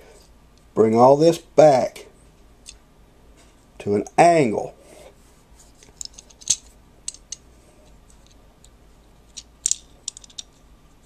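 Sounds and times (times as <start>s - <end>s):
plastic toy parts clicking: 9.3s - 10.6s.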